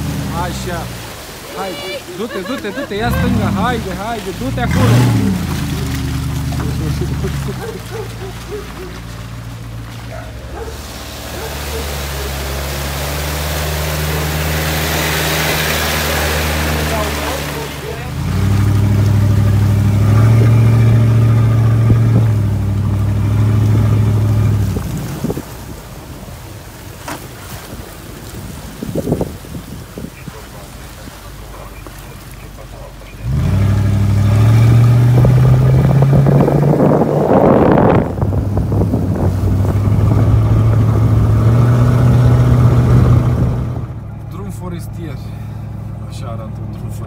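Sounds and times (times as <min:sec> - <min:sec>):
road noise on gravel: 0:00.0 - 0:47.0
truck engine running: 0:02.0 - 0:25.4, 0:30.2 - 0:47.0
wind buffeting microphone: 0:18.2 - 0:26.7, 0:27.4 - 0:30.8, 0:34.7 - 0:44.0.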